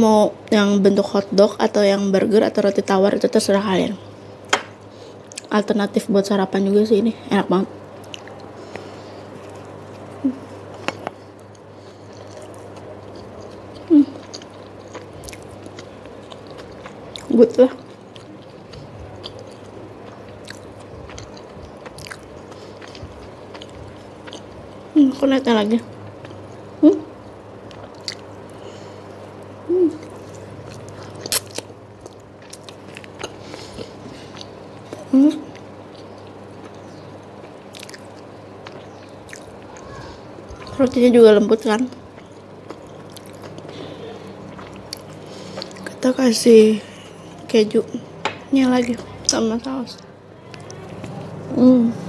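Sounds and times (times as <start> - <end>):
wet chewing: 8.0 - 26.7, 27.6 - 46.1
person humming: 29.7 - 30.1.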